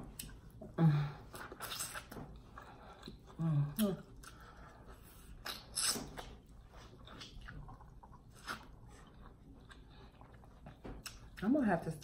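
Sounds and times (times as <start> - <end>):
person biting and chewing corn: 1.3 - 3.2, 5.0 - 11.2.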